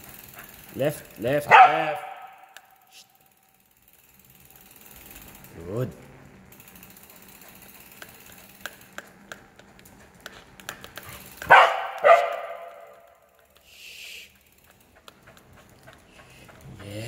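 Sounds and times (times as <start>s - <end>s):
bicycle freewheel ticking: 0.0s - 17.0s
dog barking sharply: 1.5s - 2.6s, 11.4s - 13.1s.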